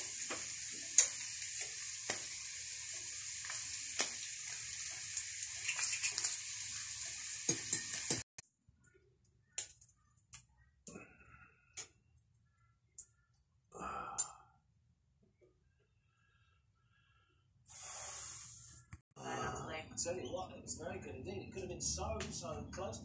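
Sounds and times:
steaks sizzling in a frying pan: 0:00.0 - 0:08.2.

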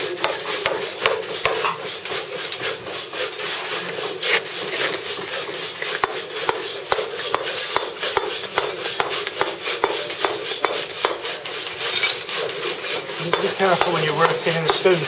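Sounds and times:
mallet tapping steel claw tool: 0:00.0 - 0:02.6, 0:05.8 - 0:15.0
claw teeth scraping stone: 0:00.0 - 0:15.0.

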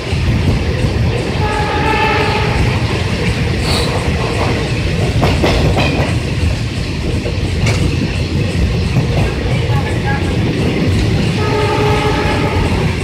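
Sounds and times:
train wheels rumbling on track: 0:00.0 - 0:13.0
train horn blast: 0:01.4 - 0:02.8, 0:11.3 - 0:13.0.

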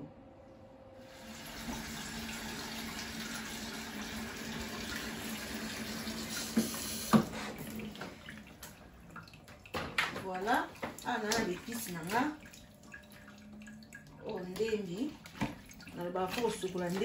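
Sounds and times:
tap water pouring into plastic bowl: 0:01.4 - 0:17.0
low steady hum: 0:07.4 - 0:17.0.

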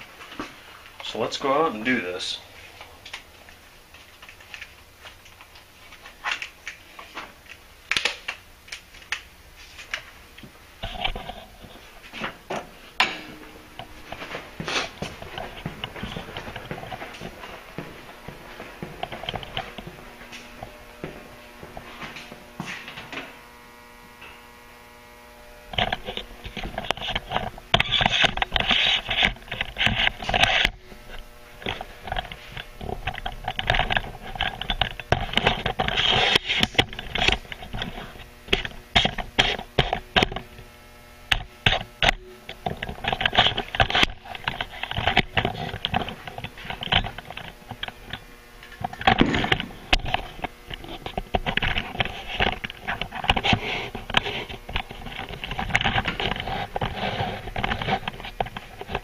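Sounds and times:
steady electrical hum: 0:00.0 - 0:59.0
knocks and scrapes of handling: 0:09.6 - 0:23.3, 0:25.7 - 0:40.5, 0:41.3 - 0:59.0.

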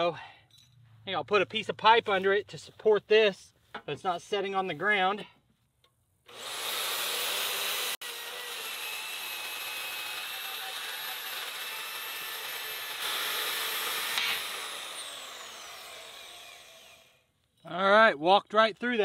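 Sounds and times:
bandsaw motor whining: 0:06.3 - 0:17.2
blade rasping through metal: 0:06.4 - 0:16.9.

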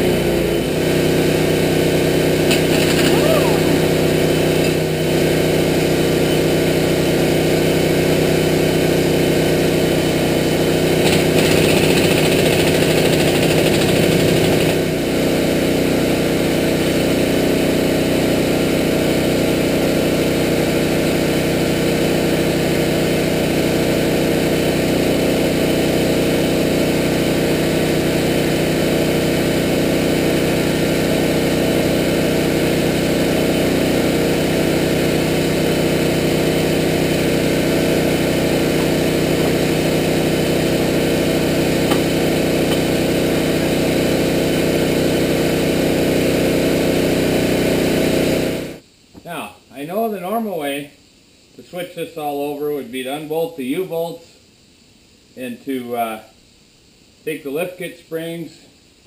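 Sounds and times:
engine idling: 0:00.0 - 0:48.8
air impact wrench rattling: 0:02.4 - 0:05.0, 0:11.0 - 0:15.0, 0:37.2 - 0:43.2.

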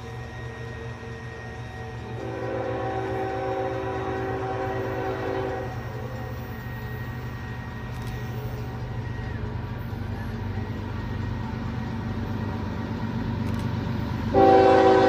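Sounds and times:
low train rumble: 0:00.0 - 0:15.0
train air horn blast: 0:02.1 - 0:06.2, 0:14.3 - 0:15.0.

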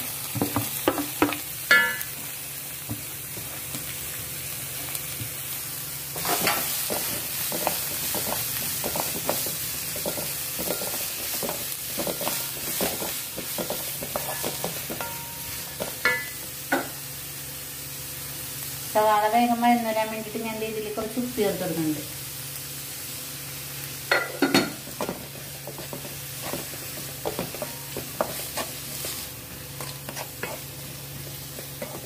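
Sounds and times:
onions sizzling in oil: 0:00.0 - 0:32.0
spatula scraping a pan: 0:06.2 - 0:15.1, 0:25.0 - 0:32.0.

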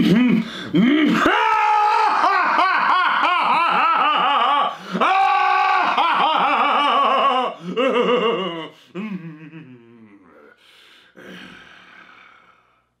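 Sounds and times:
man laughing loudly: 0:01.2 - 0:05.2, 0:05.8 - 0:09.7.

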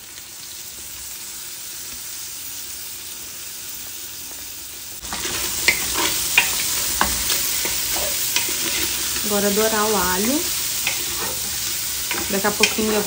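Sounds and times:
meat sizzling in a pot: 0:00.0 - 0:13.0
wooden spoon scraping a pot: 0:05.0 - 0:13.0.

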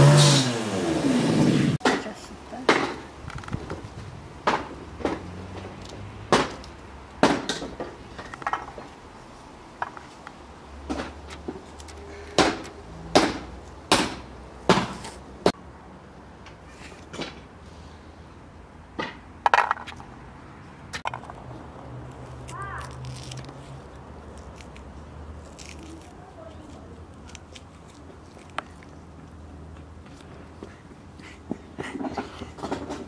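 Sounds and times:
engine revving: 0:00.0 - 0:01.8
green beans snapping: 0:22.1 - 0:29.0.

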